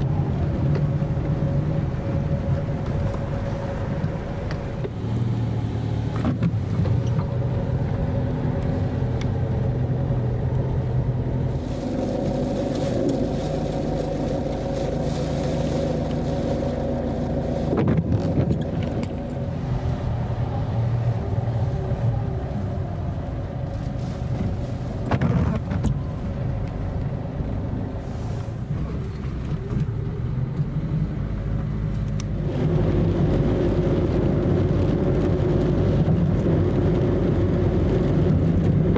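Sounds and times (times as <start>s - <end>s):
car engine hum: 0.0s - 38.9s
road noise: 0.0s - 38.9s.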